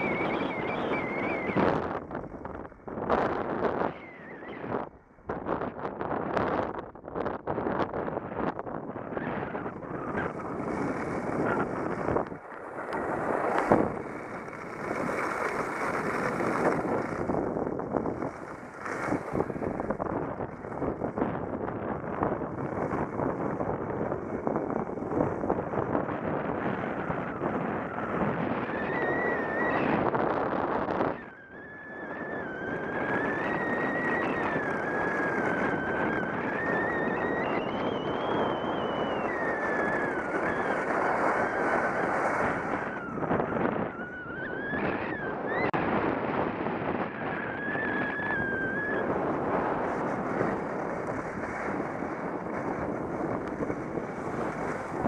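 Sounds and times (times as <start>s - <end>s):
thin wavering whistle: 0.0s - 1.8s, 3.8s - 4.8s, 35.8s - 41.6s, 42.7s - 45.7s, 47.2s - 49.2s
wind rushing over microphone: 0.0s - 55.0s.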